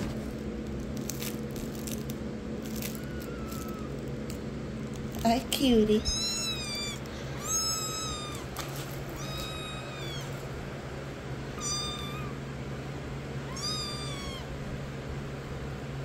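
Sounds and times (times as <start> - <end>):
kitten mewing: 2.7 - 4.2, 5.8 - 10.6, 11.5 - 12.5, 13.4 - 14.6.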